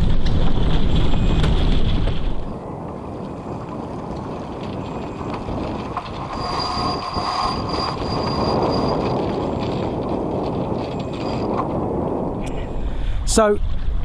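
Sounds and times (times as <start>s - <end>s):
rope squealing on winch: 4.8s - 10.0s, 10.8s - 11.6s.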